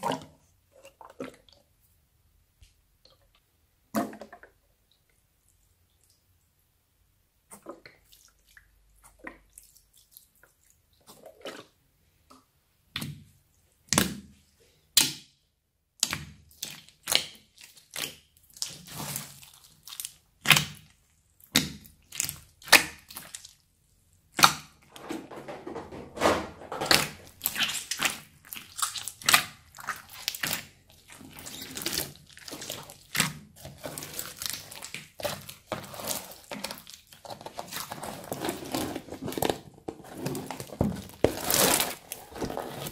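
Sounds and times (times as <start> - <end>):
slime squishing with wet pops: 16.0 - 23.6, 24.2 - 24.8, 26.9 - 39.5.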